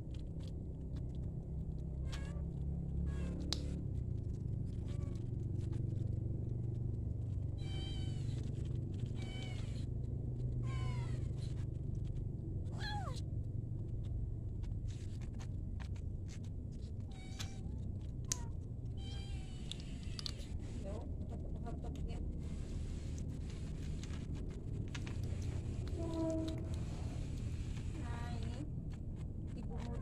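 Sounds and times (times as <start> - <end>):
steady low hum: 0.0 - 30.0
cat meowing: 2.0 - 3.8, 4.7 - 5.3, 7.6 - 9.9, 10.5 - 11.5, 12.7 - 13.2, 17.0 - 20.5.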